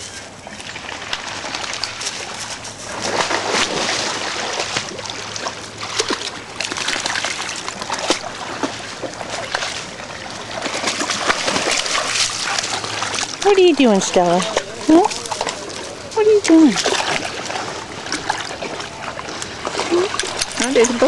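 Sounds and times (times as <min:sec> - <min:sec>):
creek water running and splashing: 0:00.0 - 0:21.0.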